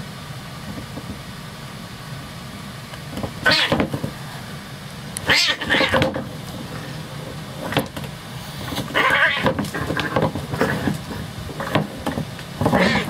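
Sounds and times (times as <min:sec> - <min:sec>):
cats fighting: 0:03.1 - 0:04.2, 0:05.2 - 0:13.0
cat harsh threatening cry: 0:03.4 - 0:03.8, 0:05.2 - 0:06.1, 0:08.9 - 0:10.2, 0:12.8 - 0:13.0
short pitched cat cries: 0:03.4 - 0:03.8, 0:05.2 - 0:06.0, 0:08.9 - 0:09.5.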